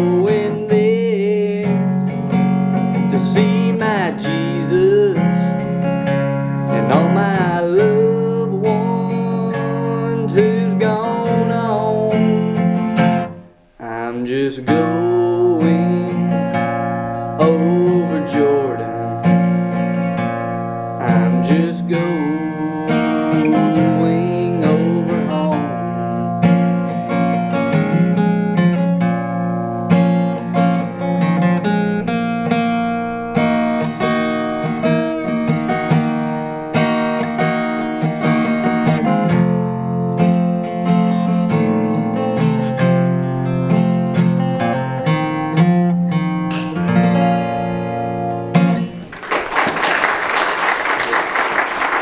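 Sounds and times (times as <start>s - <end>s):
acoustic guitar playing: 0.0s - 49.4s
applause: 49.0s - 52.0s.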